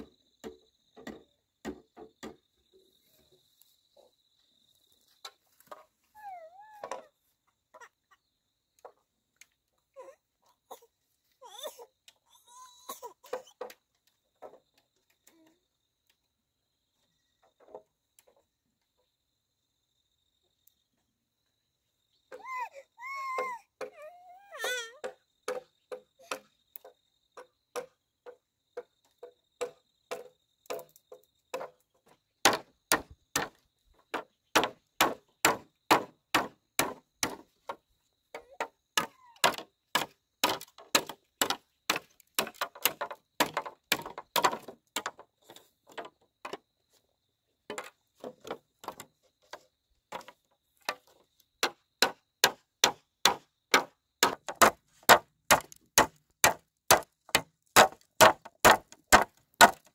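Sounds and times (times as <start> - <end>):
hand tool striking bamboo: 24.7 - 26.9, 29.6 - 31.7, 32.4 - 37.8, 38.4 - 45.2, 50.1 - 59.9.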